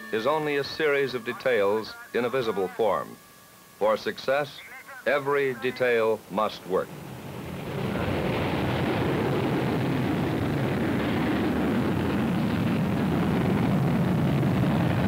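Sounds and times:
rocket engine rumbling: 0:06.7 - 0:15.0.

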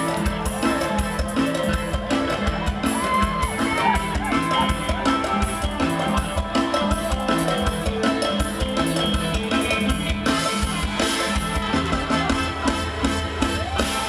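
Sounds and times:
bass line: 0:00.0 - 0:14.0
drum kit beat: 0:00.0 - 0:14.0
live band playing pop: 0:00.0 - 0:14.0.

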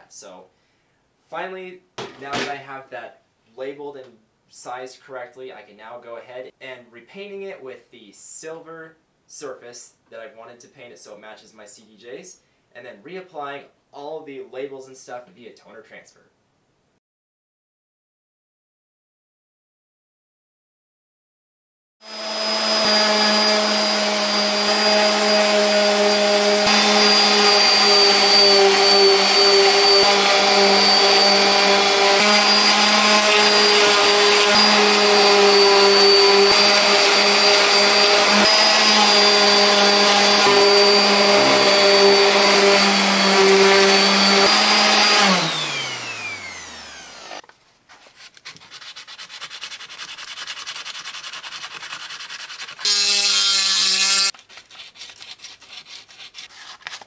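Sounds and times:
orbital sander running: 0:22.0 - 0:47.4, 0:52.8 - 0:54.3
sander motor winding down: 0:22.0 - 0:47.4, 0:52.9 - 0:54.3
sandpaper scratching metal: 0:25.2 - 0:44.5, 0:48.0 - 0:57.0.

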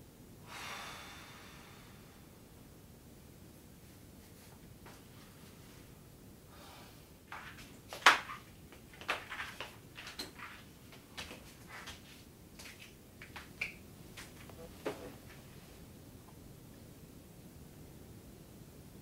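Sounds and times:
shuffling steps: 0:03.8 - 0:06.0, 0:07.3 - 0:15.8.

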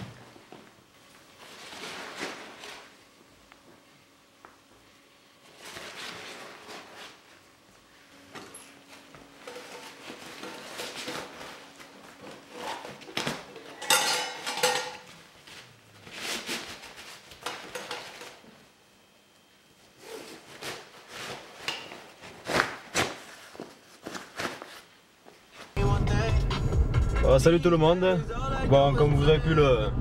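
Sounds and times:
metal items clinking: 0:13.6 - 0:15.1.

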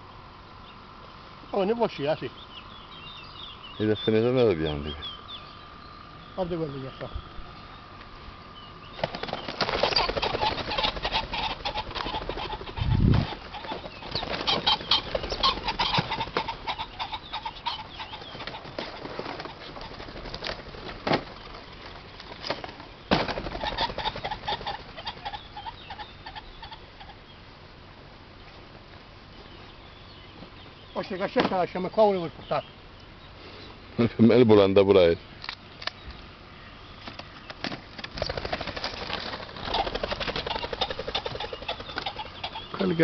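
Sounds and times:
pheasant wingbeats: 0:08.9 - 0:27.2, 0:37.0 - 0:43.0.

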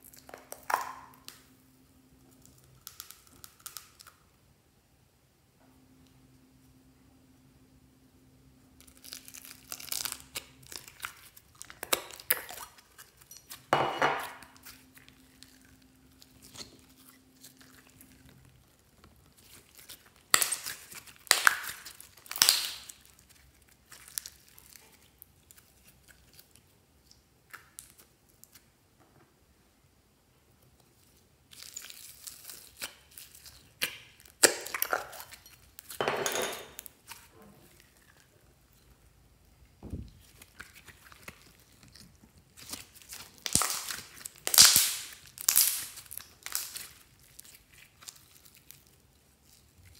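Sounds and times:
slime squishing and crackling: 0:02.3 - 0:04.2, 0:08.8 - 0:28.6, 0:30.9 - 0:36.0, 0:40.0 - 0:49.9.

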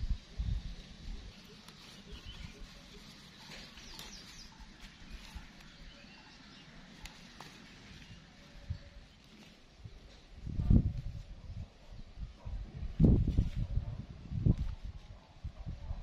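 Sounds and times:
leaves rustling and snapping: 0:00.7 - 0:11.2.

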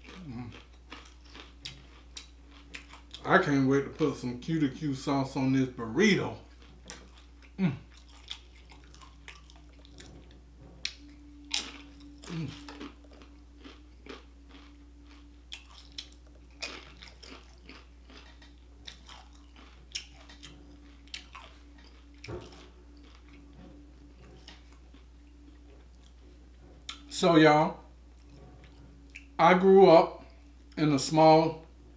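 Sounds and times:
chip crunching: 0:00.0 - 0:04.3, 0:06.2 - 0:10.2, 0:10.8 - 0:23.6
faint steady hum: 0:00.0 - 0:31.9.

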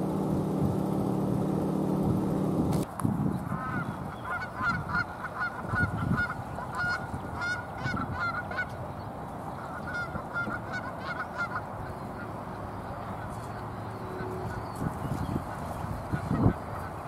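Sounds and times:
low background rumble: 0:00.0 - 0:08.7
flock of birds honking: 0:03.5 - 0:17.0.

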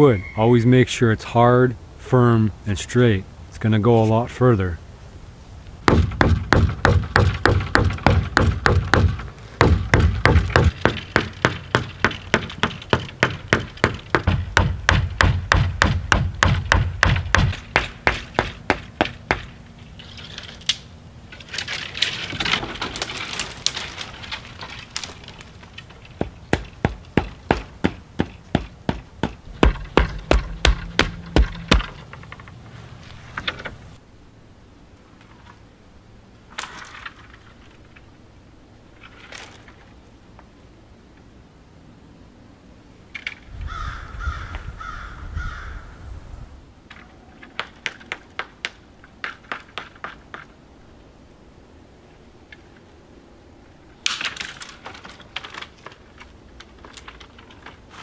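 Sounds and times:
stone axe chopping wood: 0:05.9 - 0:19.5, 0:26.2 - 0:32.1
rustling and snapping brush: 0:16.6 - 0:34.0, 0:38.9 - 0:40.5, 0:53.9 - 0:58.0.

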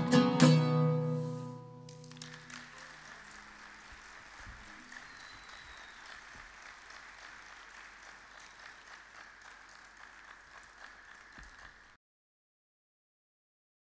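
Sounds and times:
audience applauding: 0:01.9 - 0:12.0.

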